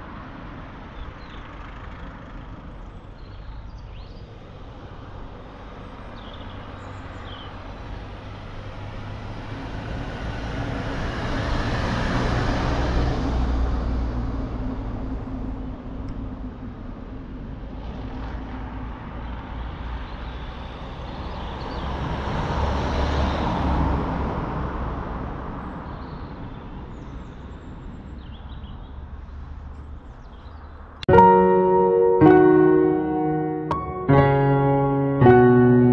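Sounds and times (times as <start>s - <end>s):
vehicle passing: 7.8s - 15.0s
piano music: 31.0s - 35.9s.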